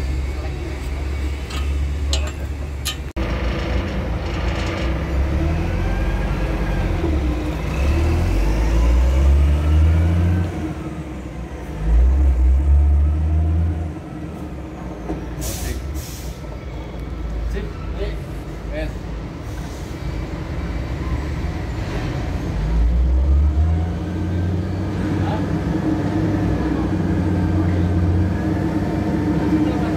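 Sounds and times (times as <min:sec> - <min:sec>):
air brake hisses: 0:15.4 - 0:16.5, 0:19.4 - 0:20.0.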